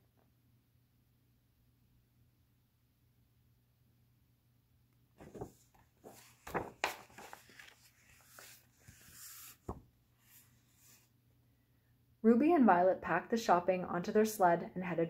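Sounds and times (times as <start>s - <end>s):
book pages rustling: 5.2s - 11.1s.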